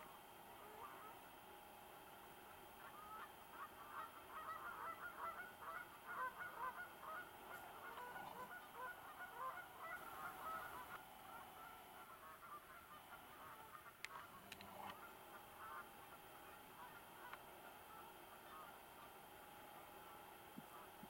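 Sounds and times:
flock of birds calling: 0:00.0 - 0:01.4, 0:02.1 - 0:21.0.

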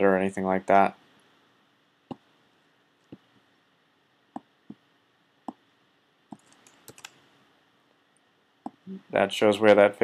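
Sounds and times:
computer mouse clicking: 0:06.3 - 0:07.2.

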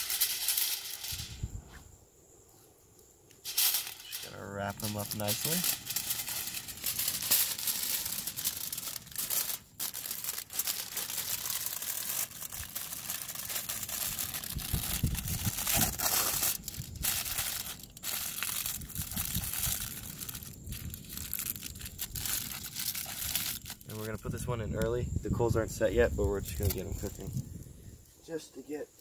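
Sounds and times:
foil tearing off roll: 0:00.0 - 0:01.2, 0:03.5 - 0:24.1
aluminium foil crinkling: 0:00.0 - 0:01.4, 0:03.4 - 0:24.3.

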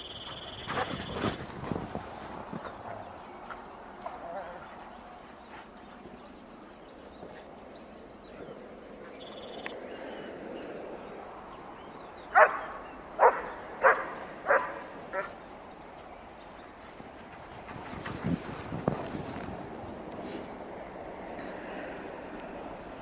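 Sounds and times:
dog barking: 0:12.4 - 0:12.6, 0:13.2 - 0:15.3.

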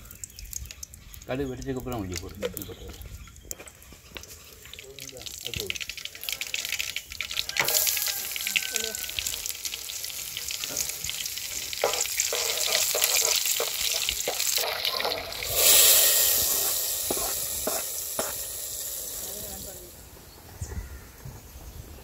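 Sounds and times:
hot oil sizzling in a pan: 0:00.0 - 0:20.1
loud hiss of tempering poured: 0:04.2 - 0:20.1
mustard seeds popping: 0:09.2 - 0:19.8.

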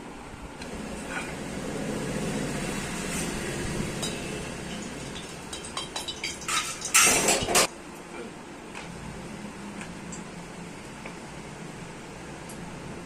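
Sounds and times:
loud utensil clatter: 0:00.6 - 0:07.7.

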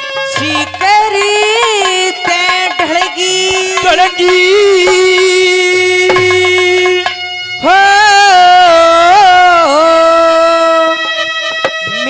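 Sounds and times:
steady drone accompaniment: 0:00.4 - 0:10.0.

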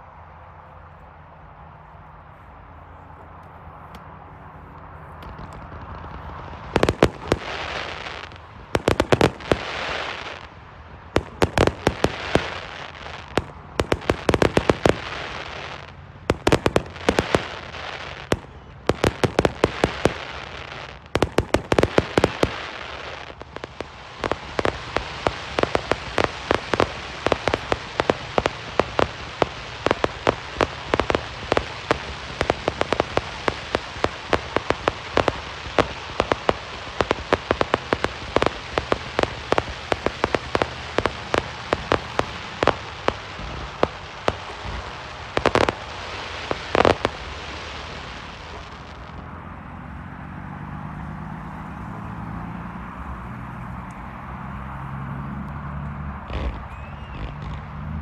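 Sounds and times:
fireworks bangs: 0:03.8 - 0:49.4, 0:55.5 - 0:58.0
crackle of small pops: 0:04.7 - 0:49.2, 0:55.4 - 0:57.7
fireworks hissing rush: 0:04.7 - 0:49.2, 0:56.2 - 0:58.0.

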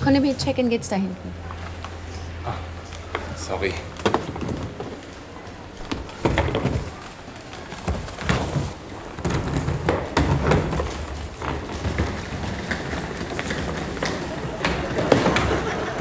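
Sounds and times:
low rumble of hall noise: 0:00.0 - 0:16.0
suitcase knocking and thudding: 0:04.0 - 0:05.0, 0:05.8 - 0:15.9.

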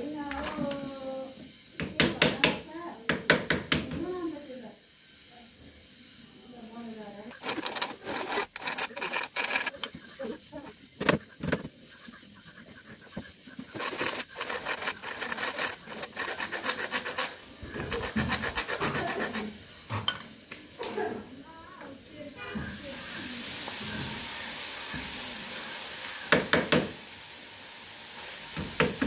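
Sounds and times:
hand file rasping on metal: 0:07.3 - 0:10.4, 0:11.2 - 0:19.6.

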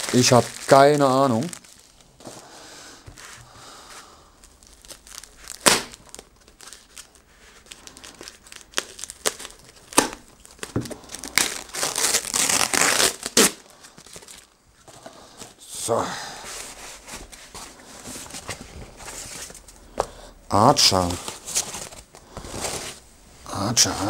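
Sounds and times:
plastic bag crinkling and tearing: 0:00.0 - 0:02.0, 0:04.4 - 0:14.6.

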